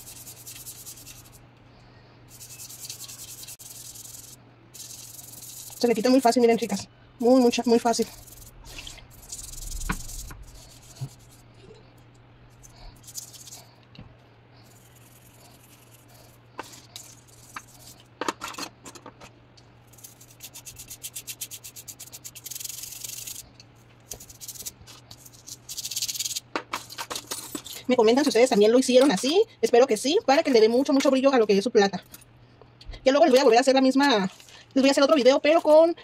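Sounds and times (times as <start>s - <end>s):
toothbrush scrubbing metal: 0.0s - 1.4s, 2.3s - 11.8s, 12.5s - 13.7s, 14.6s - 18.1s, 19.8s - 23.5s, 24.1s - 26.4s.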